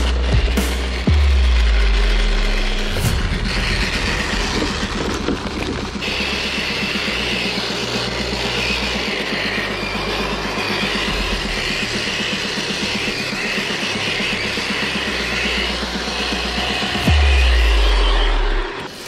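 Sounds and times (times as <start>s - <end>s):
electric motor whine: 0.0s - 19.0s
gear drive clatter: 3.5s - 10.7s.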